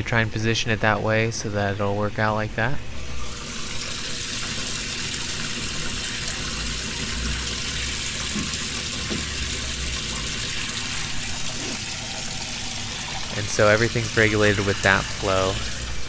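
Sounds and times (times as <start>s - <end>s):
water pouring from hose into tank: 3.0s - 16.0s.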